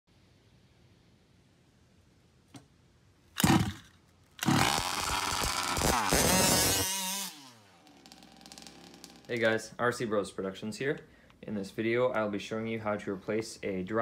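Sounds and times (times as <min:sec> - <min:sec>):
rc car engine revving: 0:03.4 - 0:03.8, 0:04.4 - 0:09.3.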